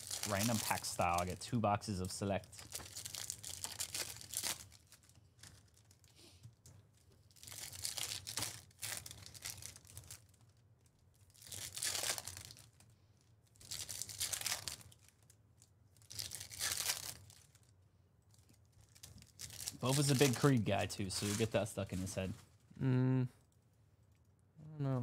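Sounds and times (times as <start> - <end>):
foil wrappers tearing and crinkling: 0.0 - 1.4, 2.5 - 6.1, 7.3 - 10.6, 11.2 - 12.8, 13.6 - 15.4, 16.0 - 17.7, 18.3 - 22.1.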